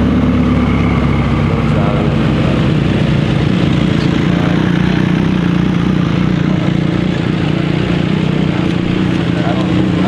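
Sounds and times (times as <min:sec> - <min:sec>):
car engine at low revs: 0:00.0 - 0:10.0.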